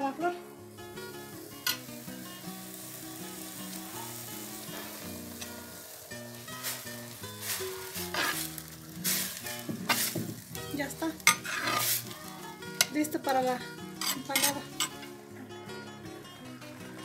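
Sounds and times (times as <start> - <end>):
vegetables sizzling in a pan: 0.0 - 15.3
background music: 0.0 - 17.0
spoon stirring: 7.4 - 10.2, 11.2 - 13.0, 14.0 - 15.1.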